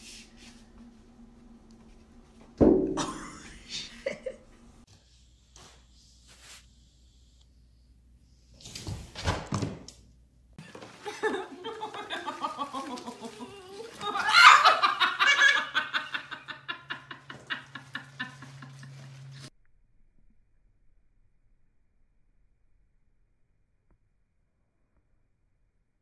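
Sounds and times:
person laughing: 3.0 - 4.6, 10.6 - 19.2.

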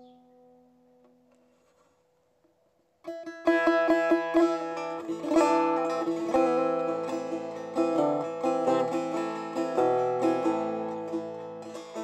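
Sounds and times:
plucked string melody: 3.0 - 12.0.

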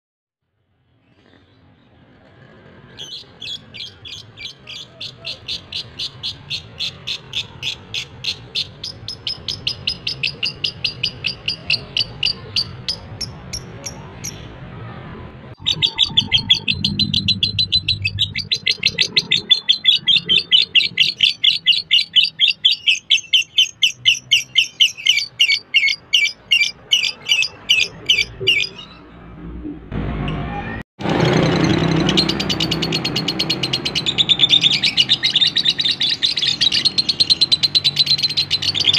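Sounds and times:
lovebird chattering chirps: 15.6 - 29.0.

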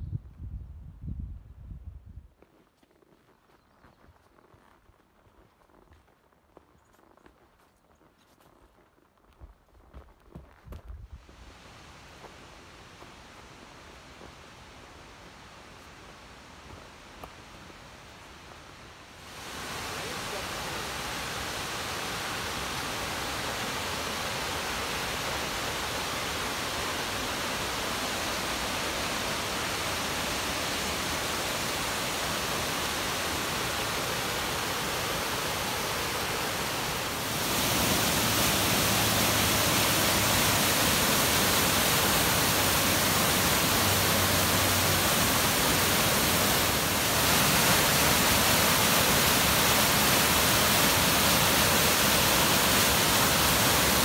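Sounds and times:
rushing water: 11.2 - 54.0.

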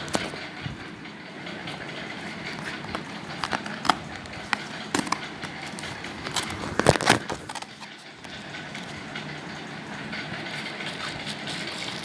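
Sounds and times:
cardboard clicks and crackles: 2.8 - 7.9.

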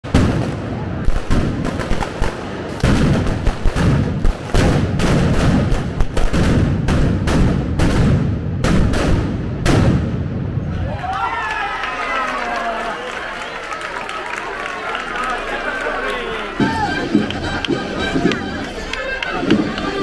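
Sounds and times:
firecrackers banging: 0.0 - 10.9, 15.4 - 20.0.

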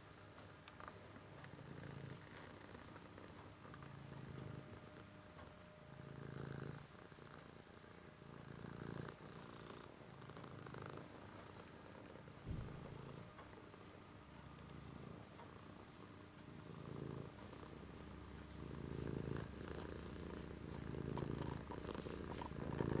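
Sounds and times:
cat purring: 0.0 - 23.0
brief knock: 12.5 - 12.8.

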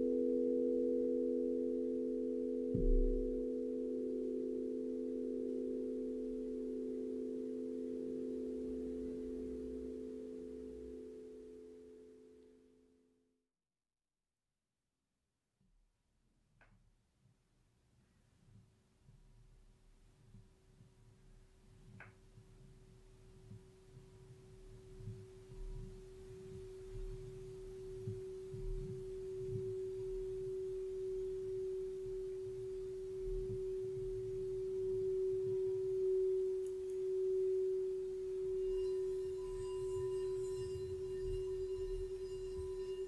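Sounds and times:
singing bowl tone: 0.0 - 12.8, 24.0 - 43.0
higher ringing tones: 28.0 - 43.0.

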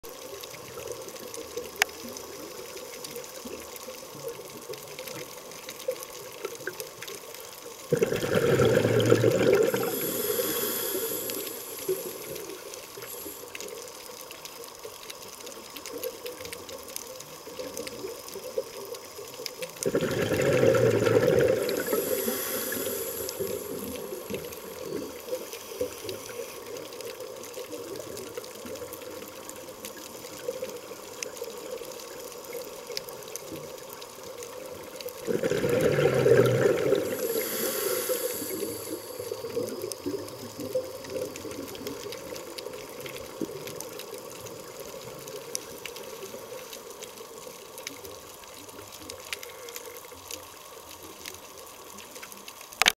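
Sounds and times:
low underwater hiss: 0.0 - 52.9
faint clicks: 0.1 - 8.1, 9.4 - 35.3, 36.6 - 52.9
diver breathing through regulator: 7.9 - 13.5, 19.8 - 24.8, 35.3 - 39.5
exhaled bubbles: 7.9 - 13.7, 17.4 - 31.3, 34.6 - 47.0.

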